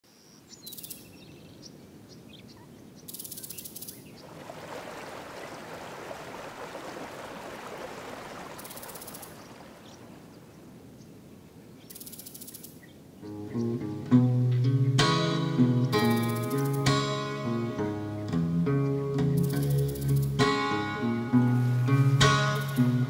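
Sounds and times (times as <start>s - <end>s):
creek water running over rocks: 4.1s - 11.3s, 21.6s - 23.0s.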